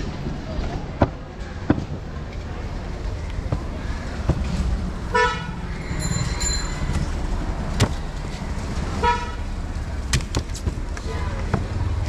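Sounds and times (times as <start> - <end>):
street traffic rumbling: 0.0 - 12.0
vehicle horn toot: 5.1 - 6.8.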